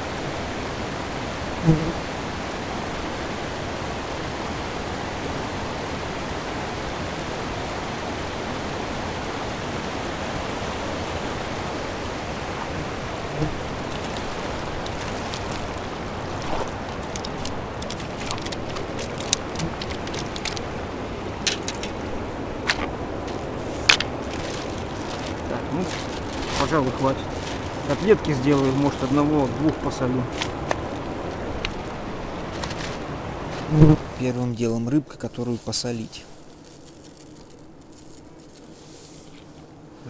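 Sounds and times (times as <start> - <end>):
river rushing over stones: 0.0 - 34.3
stones clicking and knocking: 13.8 - 20.7, 21.4 - 22.0.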